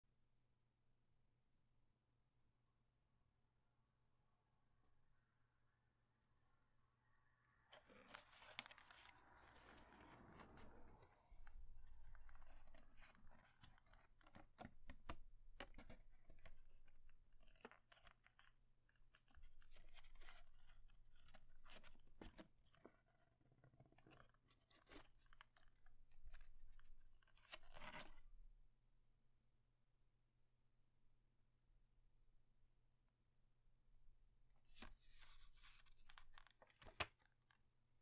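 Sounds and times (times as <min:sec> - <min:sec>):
paper airplane crinkling: 0:07.8 - 0:15.1.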